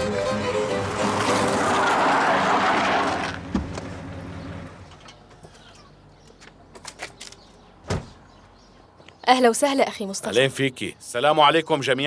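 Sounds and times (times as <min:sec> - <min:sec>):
car passing: 0:00.0 - 0:05.0
car door shutting: 0:03.2 - 0:04.0, 0:07.8 - 0:08.2.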